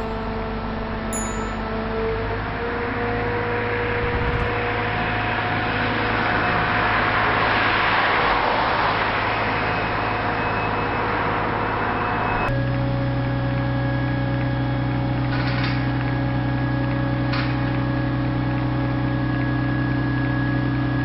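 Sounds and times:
steady engine hum: 0:00.0 - 0:21.0
vehicle passing by: 0:03.6 - 0:10.4.

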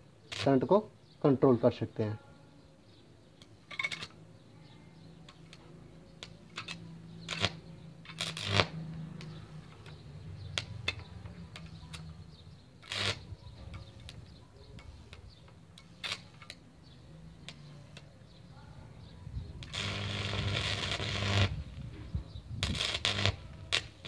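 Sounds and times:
welding arc cracking and snapping: 0:00.2 - 0:00.8, 0:06.2 - 0:12.1, 0:12.8 - 0:14.2, 0:15.1 - 0:16.6, 0:19.6 - 0:21.7, 0:22.6 - 0:24.0.

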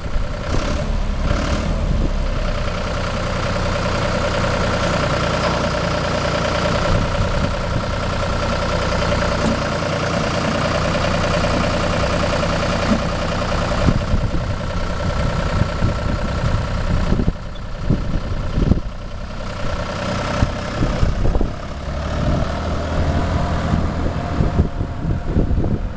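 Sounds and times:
wind rumbling on microphone: 0:00.0 - 0:02.6, 0:06.7 - 0:08.2, 0:13.6 - 0:25.9
tractor diesel engine running: 0:00.0 - 0:25.9.

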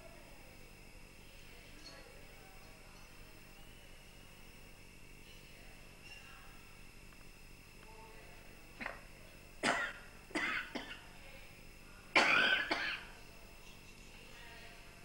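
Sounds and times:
elderly woman coughing: 0:09.6 - 0:11.0, 0:12.2 - 0:13.1.

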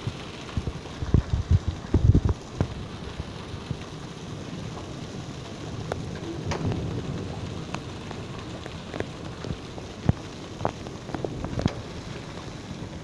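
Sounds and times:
hail and rain hissing: 0:00.0 - 0:13.0
hailstones clicking on ground: 0:00.0 - 0:13.0.

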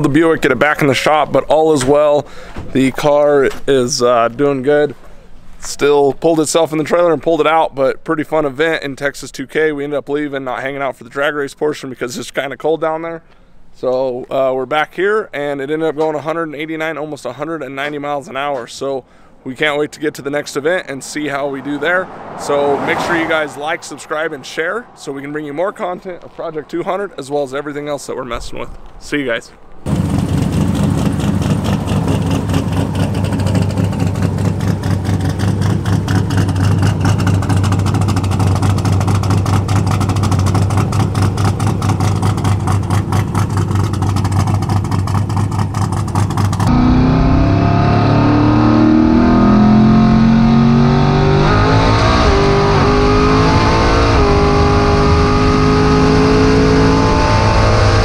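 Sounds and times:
road and wind noise: 0:00.0 - 0:11.6, 0:12.2 - 0:58.0
car engine accelerating hard: 0:21.2 - 0:27.2, 0:29.9 - 0:58.0
car engine idling lumpily: 0:29.8 - 0:46.7.

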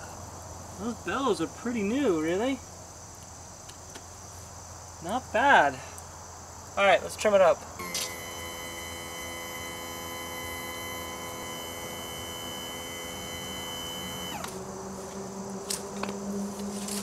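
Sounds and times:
electric pump whining: 0:07.8 - 0:14.6.

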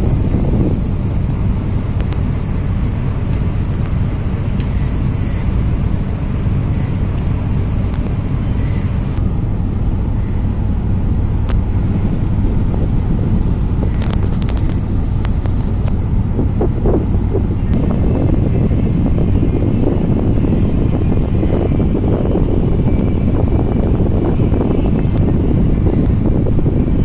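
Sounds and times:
diesel engines droning: 0:00.0 - 0:27.0
rush of water and air: 0:00.0 - 0:27.0.

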